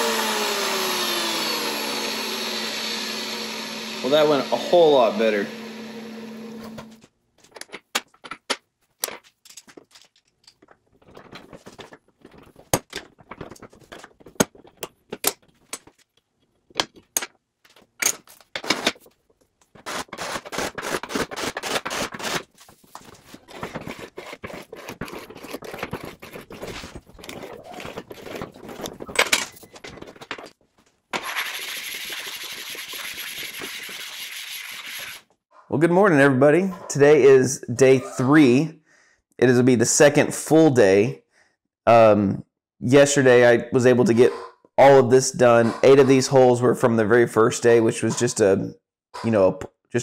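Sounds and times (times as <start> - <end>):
cordless drill drilling steel: 0.0 - 7.0.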